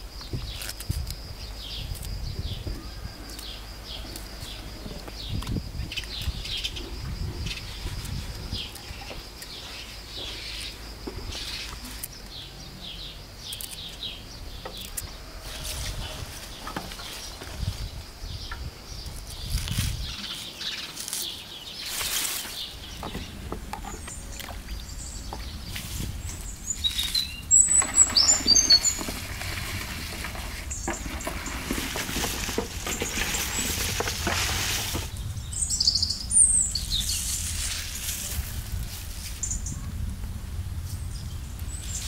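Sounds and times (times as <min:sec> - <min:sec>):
small birds chirping: 0:00.0 - 0:40.0
cabbage leaves being torn: 0:00.5 - 0:01.2, 0:19.1 - 0:22.6.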